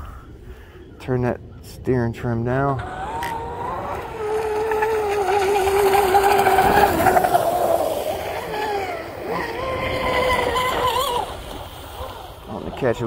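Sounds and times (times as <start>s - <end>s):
model boat motor whining: 2.8s - 12.5s.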